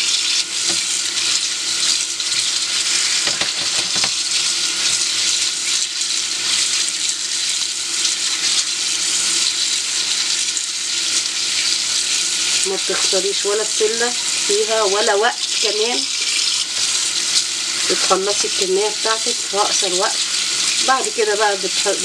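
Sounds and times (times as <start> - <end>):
tap water splashing into colander: 3.0 - 4.6.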